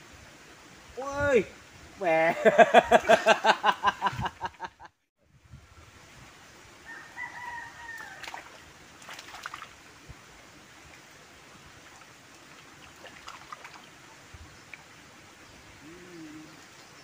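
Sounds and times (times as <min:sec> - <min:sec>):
soft steady hiss: 0:00.0 - 0:17.0
small water sounds: 0:05.4 - 0:17.0.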